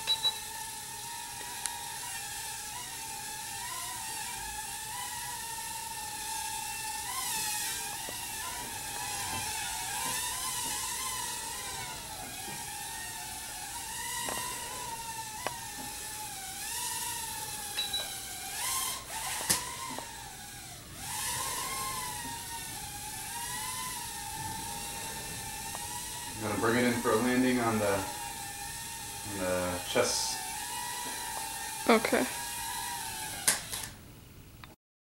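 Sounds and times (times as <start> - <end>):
quadcopter motors whining: 0.0 - 34.0.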